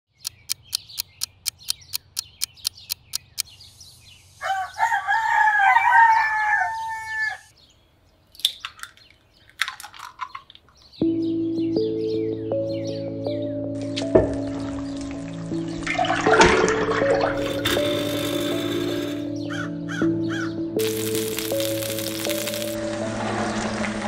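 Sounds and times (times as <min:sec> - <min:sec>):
sharp clicks: 0:00.1 - 0:03.5, 0:20.8 - 0:22.8
small birds chirping: 0:00.1 - 0:05.3, 0:06.8 - 0:09.6, 0:10.2 - 0:15.8, 0:19.1 - 0:22.8
rooster crowing: 0:04.4 - 0:07.5.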